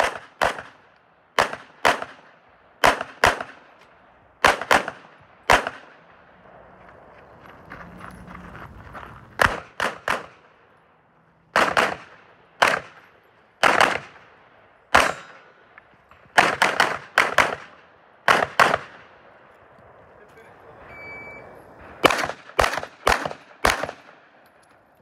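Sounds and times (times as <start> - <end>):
gunshots with echo: 0.0 - 3.8, 4.4 - 6.3, 9.4 - 10.6, 11.5 - 19.2, 21.8 - 24.3.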